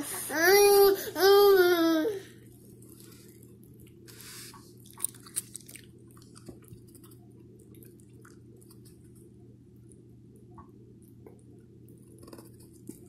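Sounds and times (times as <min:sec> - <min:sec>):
steady low hum: 0:00.0 - 0:13.0
child chewing and biting: 0:02.9 - 0:09.1.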